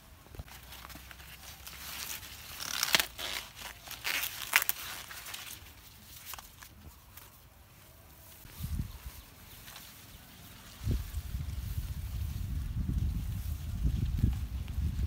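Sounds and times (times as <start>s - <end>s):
corn leaves rustling and crackling: 0.0s - 15.0s.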